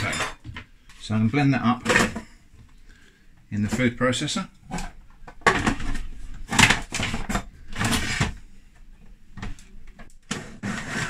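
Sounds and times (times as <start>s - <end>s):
plastic bowl and lid clattering: 4.7s - 8.4s.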